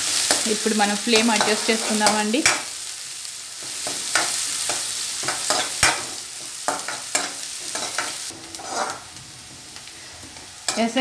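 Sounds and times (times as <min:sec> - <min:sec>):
onions sizzling in hot oil: 0:00.0 - 0:11.0
metal spatula scraping a pan: 0:03.6 - 0:09.2.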